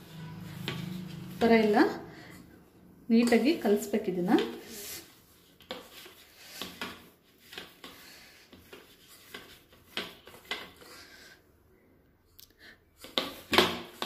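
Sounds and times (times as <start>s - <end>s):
light scrapes against steel bowl: 0.0s - 2.5s, 3.1s - 5.1s
hands squishing dough: 3.1s - 11.1s.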